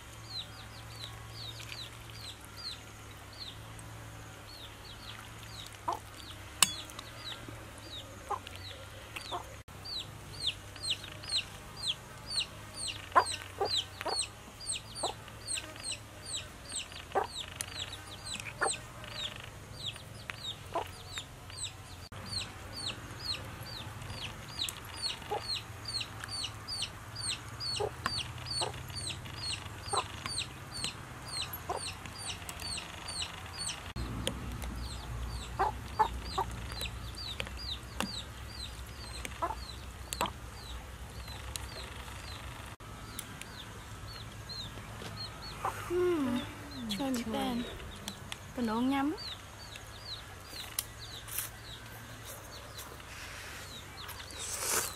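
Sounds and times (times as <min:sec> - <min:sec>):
chicks peeping: 0:04.5 - 0:54.9
low chicken clucks: 0:12.8 - 0:14.3, 0:31.4 - 0:32.4, 0:35.5 - 0:36.9, 0:39.3 - 0:40.4.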